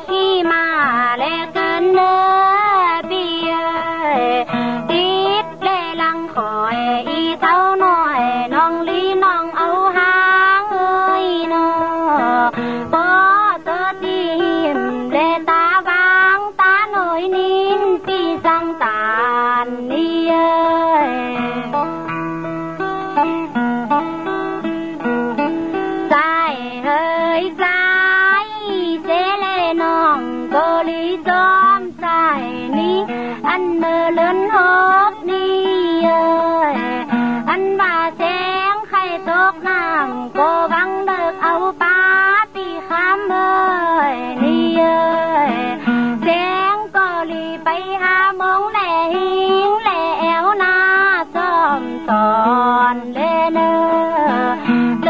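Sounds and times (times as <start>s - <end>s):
instrumental melody: 0.2s - 47.7s
person singing long held notes: 26.1s - 55.0s.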